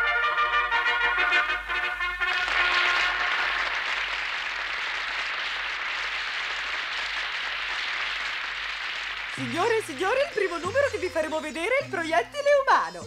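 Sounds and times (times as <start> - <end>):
brass fanfare: 0.0 - 4.8
audience applauding and cheering: 0.6 - 11.2.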